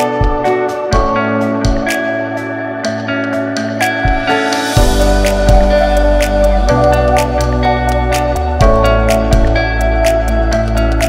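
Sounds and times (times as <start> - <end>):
background music with chords: 0.0 - 11.0
deep bass: 4.8 - 11.0.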